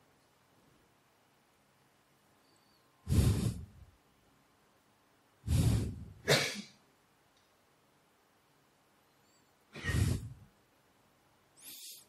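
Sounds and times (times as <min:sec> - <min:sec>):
puffs of breath: 0:03.0 - 0:03.8, 0:05.4 - 0:06.2, 0:09.7 - 0:10.5, 0:11.6 - 0:12.0.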